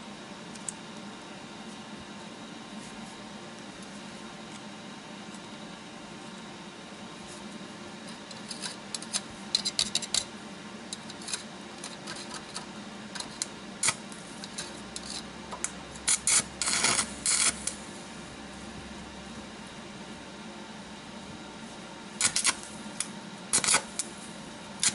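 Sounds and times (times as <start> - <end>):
welding arc crackling: 13.8 - 14.0, 16.0 - 17.8, 22.2 - 24.9.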